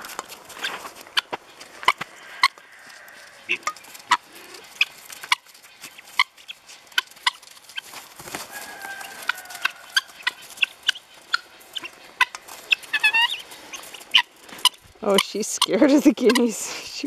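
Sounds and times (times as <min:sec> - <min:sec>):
guinea fowl clucking: 0:00.6 - 0:16.7
beaks pecking metal bowl: 0:08.8 - 0:16.7.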